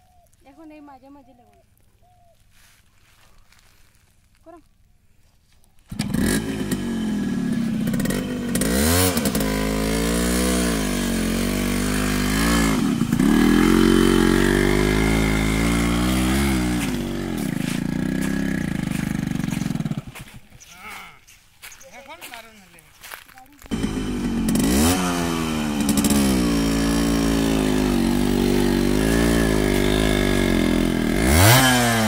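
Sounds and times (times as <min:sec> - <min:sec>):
motorcycle kickstart: 0:05.8 - 0:20.5, 0:23.7 - 0:32.0
two-stroke engine revving: 0:05.9 - 0:20.5, 0:23.6 - 0:32.0.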